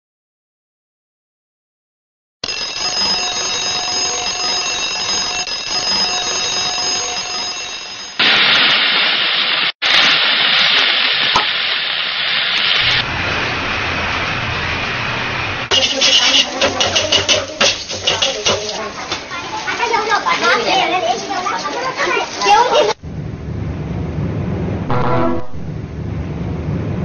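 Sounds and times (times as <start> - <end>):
alarm clock ringing: 2.4 - 8.2
loud steady hiss: 12.4 - 16.4
low rumbling noise: 12.8 - 15.7, 23.0 - 27.0.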